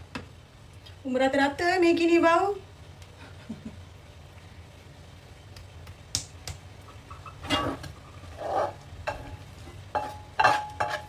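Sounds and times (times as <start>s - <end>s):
spatula scraping metal frying pan: 6.9s - 11.0s.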